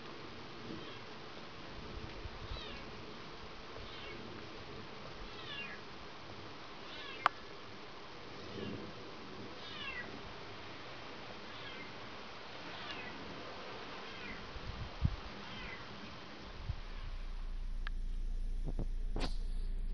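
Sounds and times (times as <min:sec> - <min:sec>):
steady background hiss: 0:00.0 - 0:19.9
faint falling animal cries: 0:00.8 - 0:01.1, 0:02.4 - 0:02.9, 0:03.8 - 0:04.3, 0:05.3 - 0:05.8, 0:06.8 - 0:07.4, 0:09.6 - 0:10.2, 0:11.5 - 0:12.0, 0:12.6 - 0:13.2, 0:14.1 - 0:14.5, 0:15.4 - 0:15.9.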